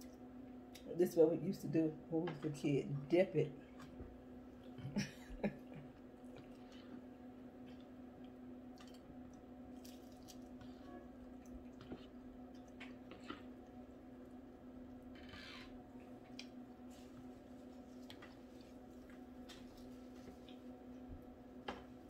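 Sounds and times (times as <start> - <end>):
steady low hum: 0.0 - 22.0
wet chewing sounds: 6.0 - 14.0, 15.9 - 21.1
soft clicks and squishes: 6.3 - 13.8, 16.0 - 21.9.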